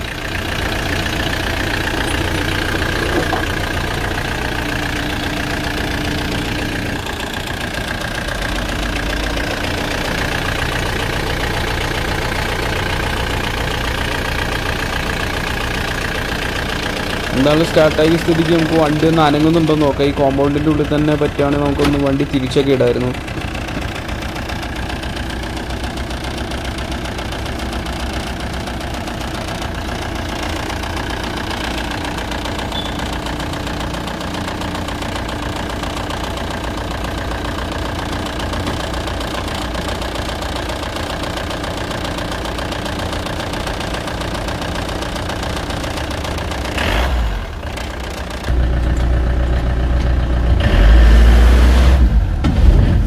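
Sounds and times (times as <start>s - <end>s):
diesel van engine idling: 0.0s - 52.4s
engine revving under load: 46.7s - 47.6s, 50.4s - 53.0s.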